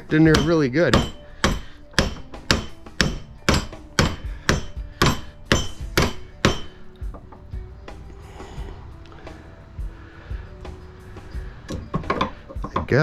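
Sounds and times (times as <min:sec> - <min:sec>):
hammer blows on metal: 0:00.0 - 0:07.2.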